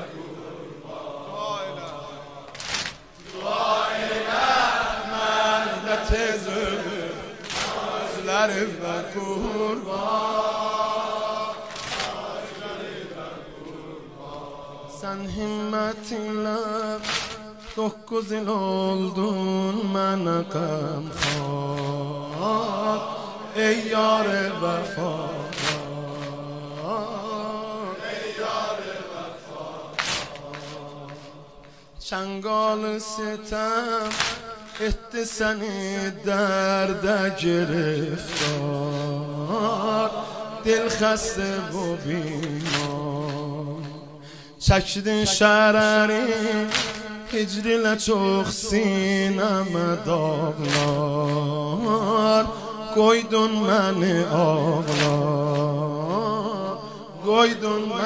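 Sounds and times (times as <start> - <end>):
man chanting a lament: 0.0 - 58.0
sharp slaps: 1.8 - 8.5, 9.4 - 14.4, 16.7 - 18.0, 20.7 - 28.6, 29.4 - 32.1, 33.6 - 36.0, 37.7 - 52.7, 53.4 - 56.6.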